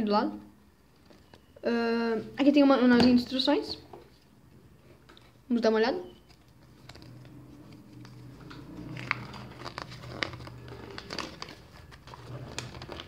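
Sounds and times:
paper crinkling and rustling: 6.3 - 13.0
sharp paper crackles: 6.4 - 13.0.

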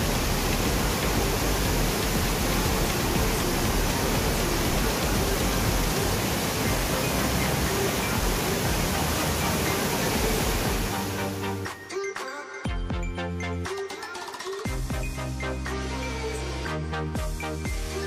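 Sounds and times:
stream rushing over rocks: 0.0 - 11.8.

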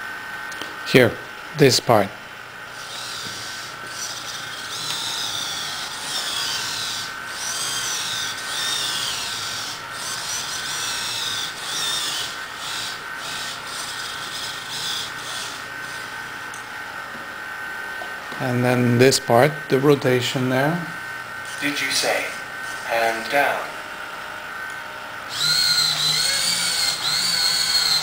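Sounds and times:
steady high hum: 0.0 - 28.0
servo motors whining: 2.7 - 16.7, 20.6 - 28.0.

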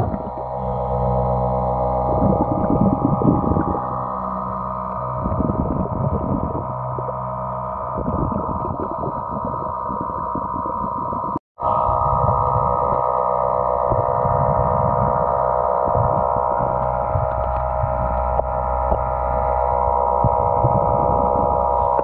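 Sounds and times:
muffled underwater rumbling and swishing: 0.0 - 22.0
steady hum of level tones: 0.0 - 22.0.

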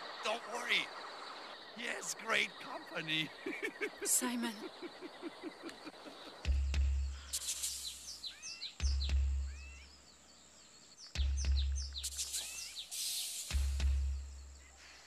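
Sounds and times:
bird chirps and whistles: 7.2 - 9.9, 11.2 - 14.3.

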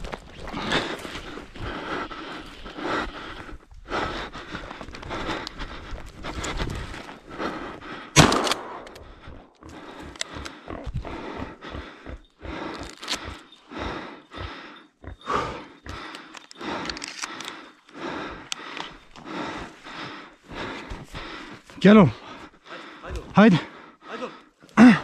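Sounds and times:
shotgun shot: 8.2 - 8.8.

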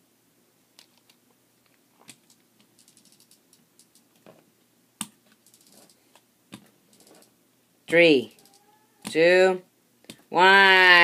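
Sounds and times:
toy gear clicks: 2.8 - 4.1, 5.4 - 6.0, 8.3 - 8.7.

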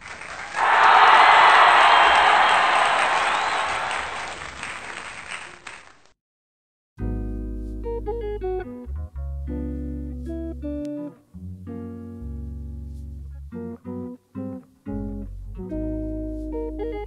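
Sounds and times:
crowd applause: 0.0 - 6.0
background music with bass line: 7.0 - 17.0.

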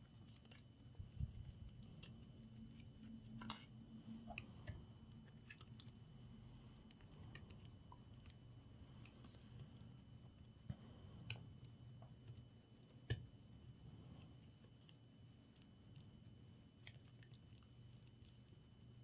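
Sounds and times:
low hum: 0.9 - 11.6.

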